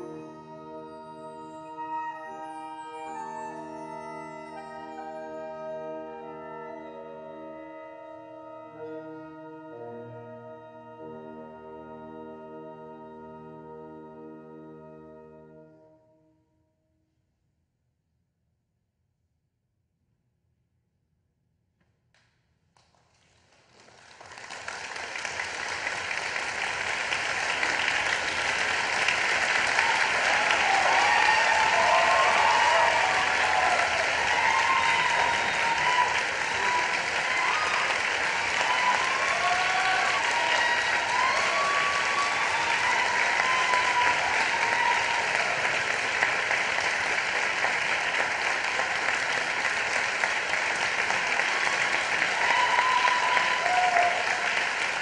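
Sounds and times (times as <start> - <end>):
audience applauding: 23.1 - 55.0
audience cheers: 27.4 - 49.4, 50.2 - 55.0.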